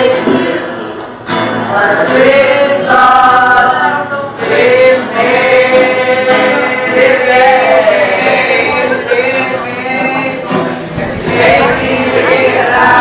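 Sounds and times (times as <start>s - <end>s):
choir-like voices singing: 0.0s - 13.0s.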